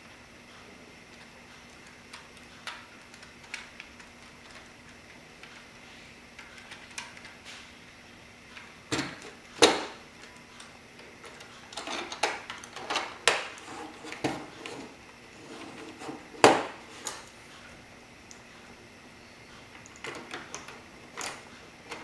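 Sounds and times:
plastic parts clicking and knocking: 8.9s - 14.9s.

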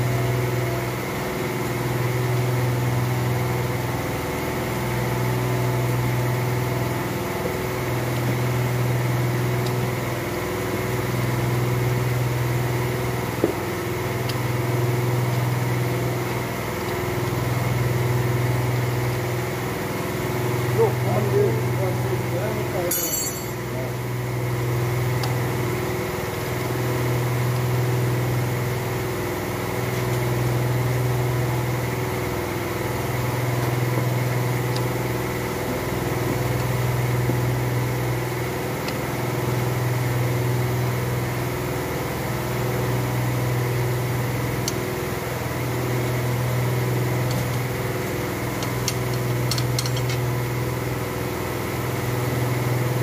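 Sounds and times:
light metal clinks: 22.9s - 23.8s.

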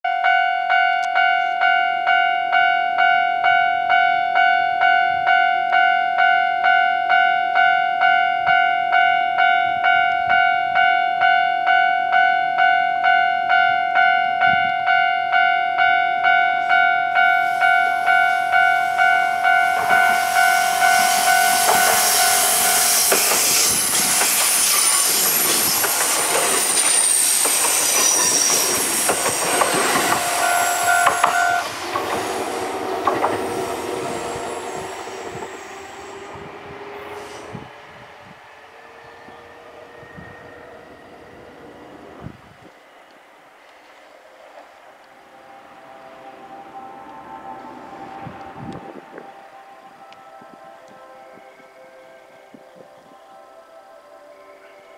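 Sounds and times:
level-crossing bell ringing: 0.1s - 37.5s
high wheel squeal: 17.3s - 38.0s
train wheels rumbling and clattering: 19.7s - 38.4s.

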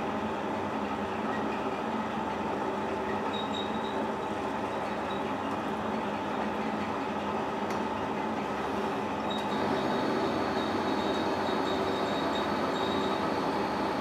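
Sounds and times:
metal lathe droning: 9.4s - 14.0s.

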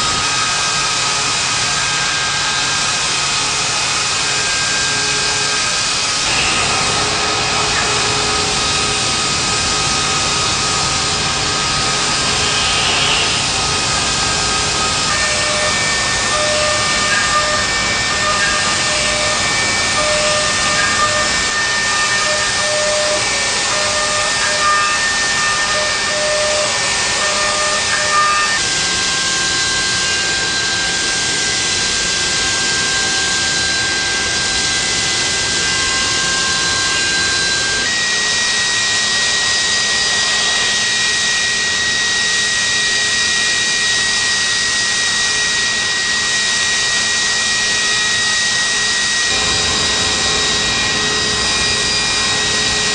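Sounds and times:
high spindle whine: 0.0s - 52.9s
coolant nozzles hissing: 8.8s - 14.8s.

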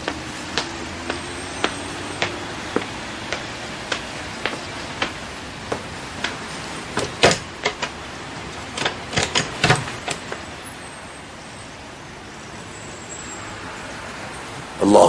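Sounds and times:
footsteps: 0.0s - 8.0s.

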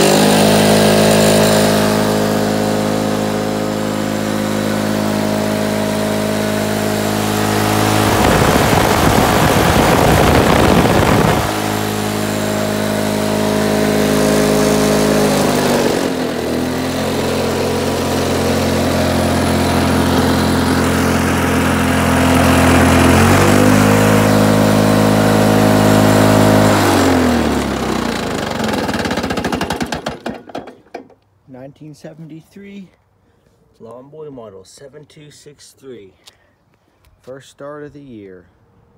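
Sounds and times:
lawn mower engine running: 0.0s - 31.2s
loud rushing noise: 0.5s - 16.8s.

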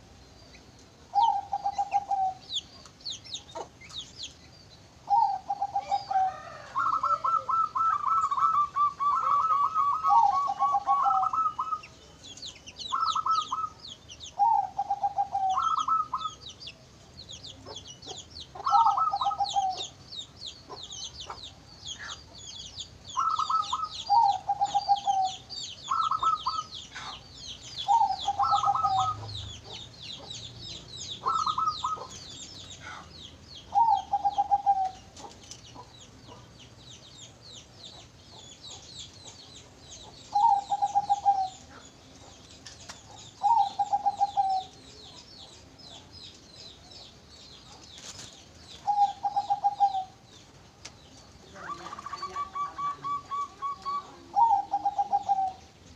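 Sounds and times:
small birds chirping: 0.0s - 55.9s
dove cooing: 1.1s - 2.7s, 5.0s - 12.1s, 12.8s - 16.6s, 17.7s - 20.0s, 23.1s - 33.1s, 33.7s - 36.5s, 40.0s - 46.1s, 48.8s - 50.2s, 51.5s - 55.7s.

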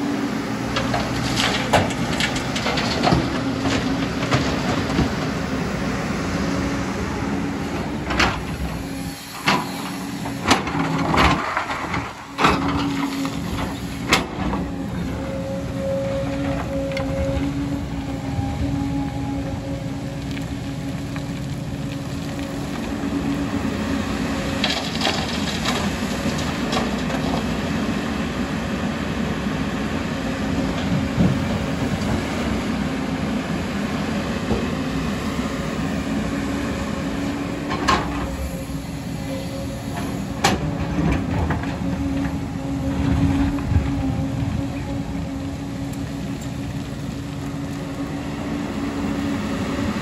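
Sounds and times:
excavator engine and hydraulics: 0.0s - 50.0s.

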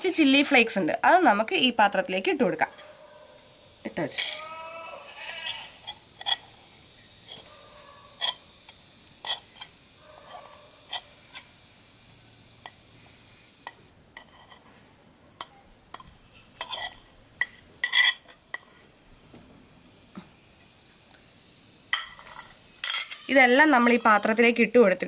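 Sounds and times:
spoon clinking and scraping on plate: 5.2s - 6.5s, 8.2s - 8.5s, 9.2s - 11.5s, 13.7s - 14.8s, 15.4s - 18.9s, 21.9s - 24.0s.

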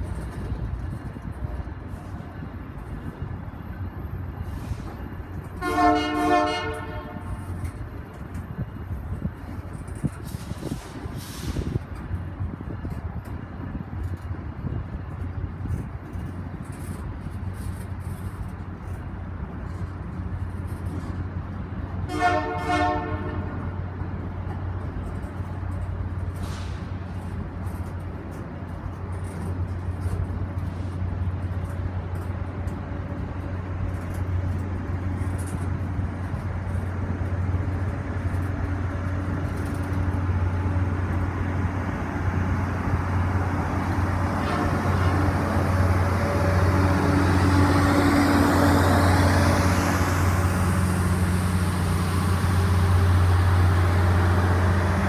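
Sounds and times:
freight train rumbling past: 0.0s - 55.0s
train horn: 5.6s - 7.5s, 22.1s - 23.6s, 44.4s - 45.4s.

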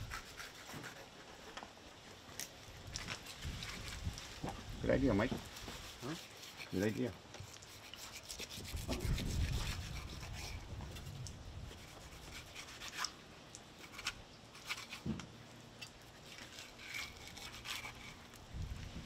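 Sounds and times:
knife scraping fish skin: 0.0s - 1.6s, 5.5s - 11.1s, 11.7s - 13.2s, 13.8s - 15.1s, 16.2s - 18.4s.

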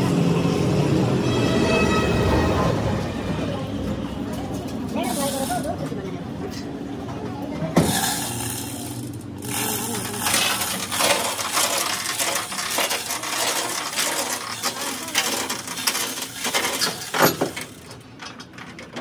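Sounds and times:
steel chains rattling: 7.8s - 19.0s.

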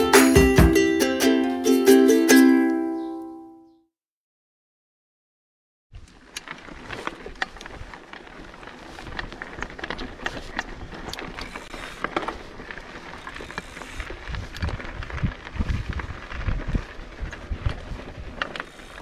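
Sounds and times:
bike rattling: 6.0s - 19.0s
bike tyres crunching: 6.0s - 19.0s
wind rumbling on microphone: 6.0s - 19.0s.

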